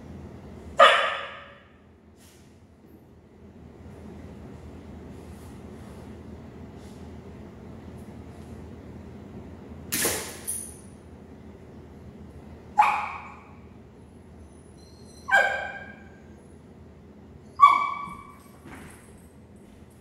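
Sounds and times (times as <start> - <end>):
dog barking: 0.8 - 1.6, 12.8 - 13.5, 15.3 - 16.1, 17.6 - 18.4.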